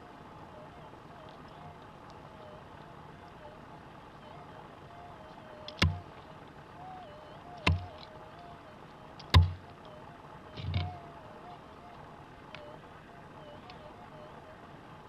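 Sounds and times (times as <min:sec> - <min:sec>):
faint wavering tone: 0:00.0 - 0:15.0
pick striking stony soil: 0:09.2 - 0:09.6.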